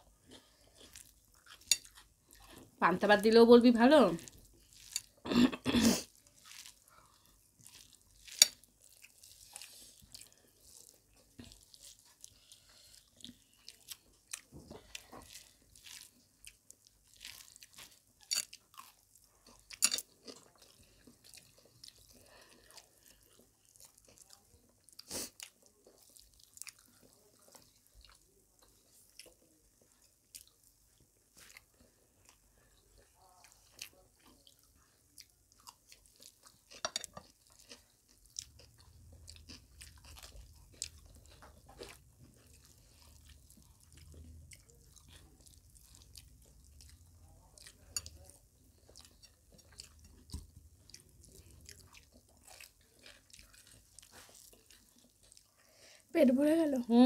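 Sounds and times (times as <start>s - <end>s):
people chewing and lip smacking: 0.0s - 2.8s, 4.2s - 56.1s
wet clicks of fingers mixing food: 13.1s - 55.6s.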